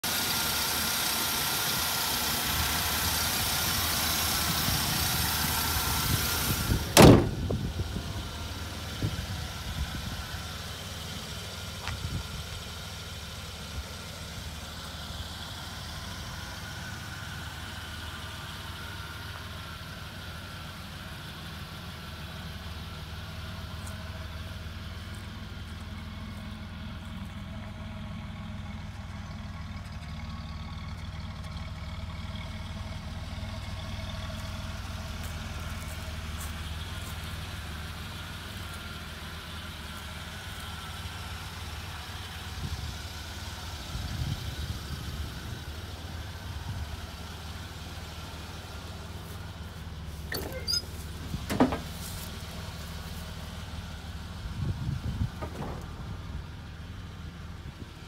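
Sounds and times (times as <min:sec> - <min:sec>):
car engine idling: 0:00.0 - 0:58.0
car hood slamming shut: 0:06.9 - 0:07.6, 0:51.4 - 0:51.9, 0:55.4 - 0:56.0
engine light knocks: 0:07.0 - 0:07.6, 0:51.3 - 0:52.3, 0:55.3 - 0:56.1.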